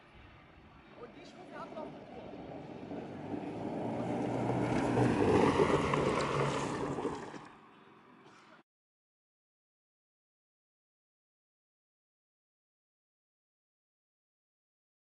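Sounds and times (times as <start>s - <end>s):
rubber tracks crunching gravel: 1.3s - 7.6s.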